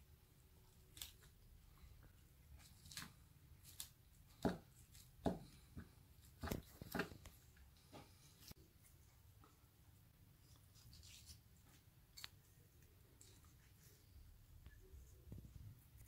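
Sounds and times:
knife cutting and scraping fish: 0:10.4 - 0:12.3.

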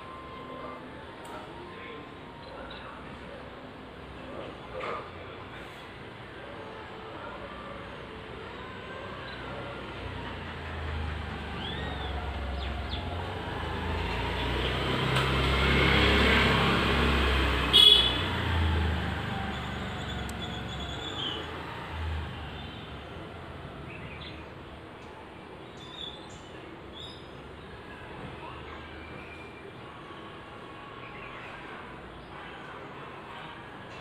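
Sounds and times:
vehicle passing by: 0:09.7 - 0:24.3.

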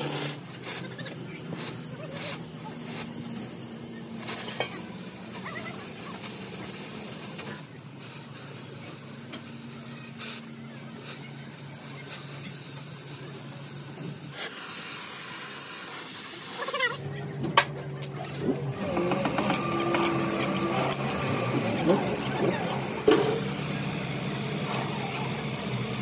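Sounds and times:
gas torch flame hissing: 0:00.0 - 0:17.0.

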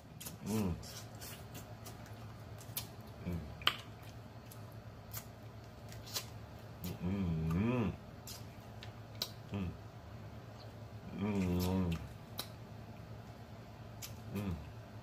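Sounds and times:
person humming: 0:00.4 - 0:00.8, 0:06.8 - 0:08.0, 0:09.5 - 0:09.8, 0:14.3 - 0:14.8
wet mouth sounds: 0:05.9 - 0:08.5, 0:11.1 - 0:12.6.

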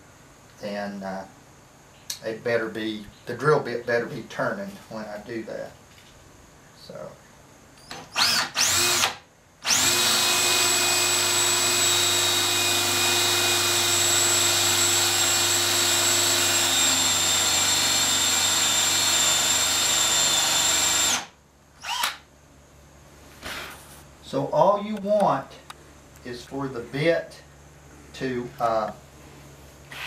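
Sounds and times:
power drill boring into wood: 0:08.1 - 0:22.2.

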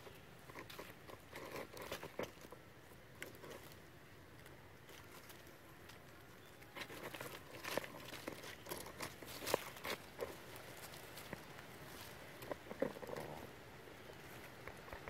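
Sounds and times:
dry leaves crackling and rustling: 0:03.1 - 0:15.0.

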